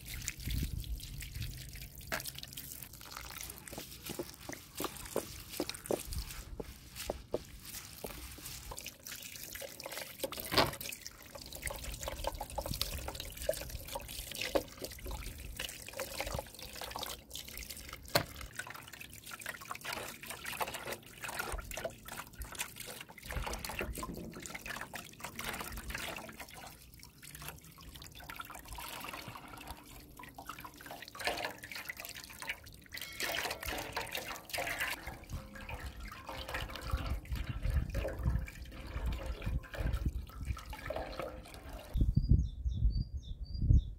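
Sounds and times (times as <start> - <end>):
hose water splashing into basin: 0.0 - 42.0
hands rubbing meat: 3.0 - 9.2.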